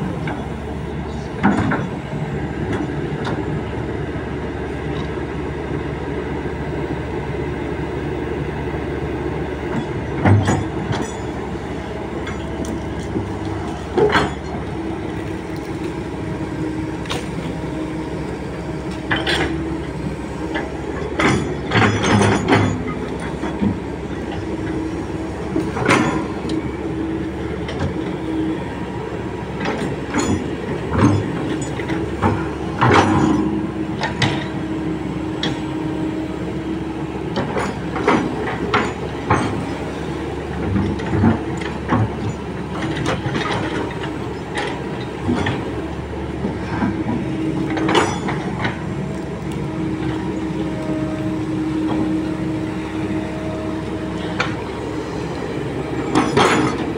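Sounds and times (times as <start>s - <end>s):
excavator diesel engine running: 0.0s - 56.9s
excavator bucket knocks and clanks: 1.3s - 2.0s, 9.7s - 11.4s, 12.2s - 15.4s, 20.5s - 24.8s, 25.6s - 26.6s, 29.6s - 34.6s, 40.5s - 48.9s, 56.0s - 56.9s.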